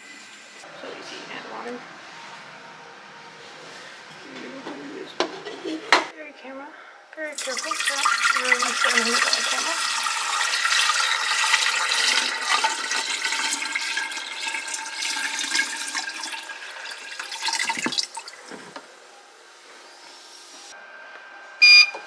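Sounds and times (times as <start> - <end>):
water pouring from jug: 7.4 - 18.5.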